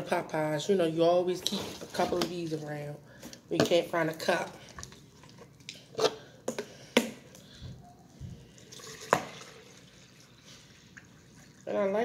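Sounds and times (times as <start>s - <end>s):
juice pouring into a cup: 8.5s - 11.9s.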